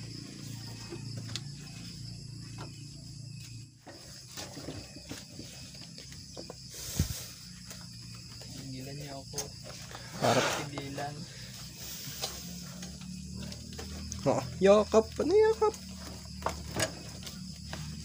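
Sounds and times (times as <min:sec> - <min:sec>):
insect trill: 0:00.0 - 0:18.0.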